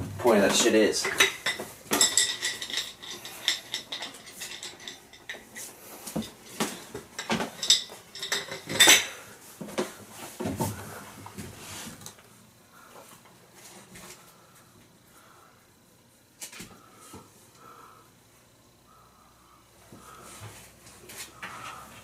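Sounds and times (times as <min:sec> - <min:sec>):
metal tools clinking: 0:00.6 - 0:06.6, 0:07.2 - 0:09.1.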